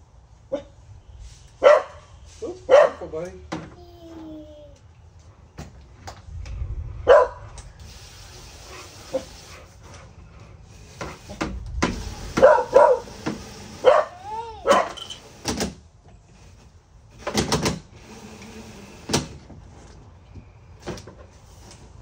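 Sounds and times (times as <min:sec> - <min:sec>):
dog barking: 0:01.6 - 0:02.1, 0:02.7 - 0:03.1, 0:07.0 - 0:07.5, 0:12.4 - 0:13.1, 0:13.8 - 0:15.0.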